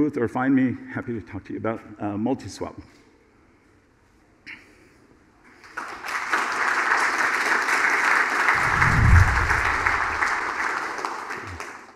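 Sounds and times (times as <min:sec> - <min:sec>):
audience applauding: 0:05.8 - 0:11.9
low boom: 0:08.5 - 0:10.5.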